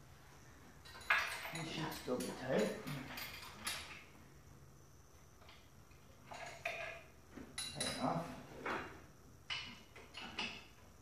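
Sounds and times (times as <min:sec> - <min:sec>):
wrench clinking on metal bolts: 0:00.8 - 0:04.0, 0:07.6 - 0:08.1.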